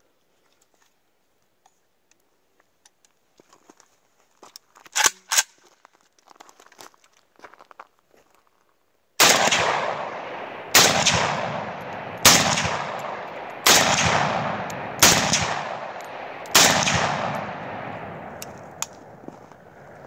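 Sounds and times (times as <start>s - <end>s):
rifle shots echoing: 9.2s - 20.0s.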